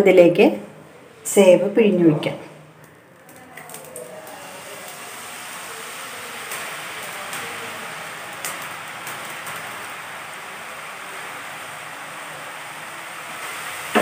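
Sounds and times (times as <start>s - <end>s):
hot oil sizzling: 2.6s - 14.0s
sharp crackles: 2.8s - 14.0s.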